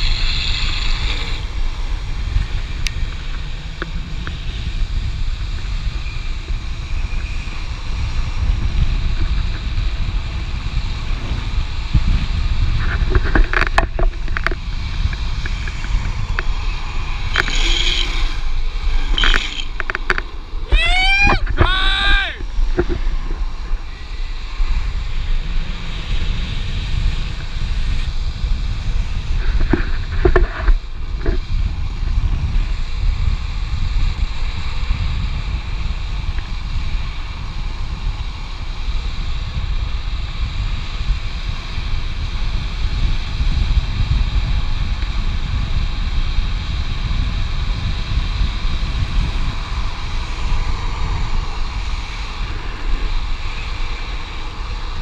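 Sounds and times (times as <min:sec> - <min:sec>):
high-pitched wheel squeals: 0:00.0 - 0:01.4, 0:17.3 - 0:20.0
wheels rolling on asphalt: 0:00.0 - 0:21.6, 0:22.4 - 0:55.0
wind buffeting microphone: 0:00.0 - 0:55.0.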